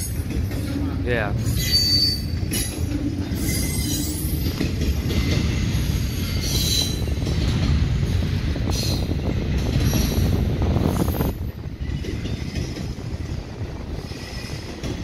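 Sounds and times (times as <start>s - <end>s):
freight train rumbling past: 0.0s - 15.0s
high-pitched wheel squeals: 1.4s - 4.5s.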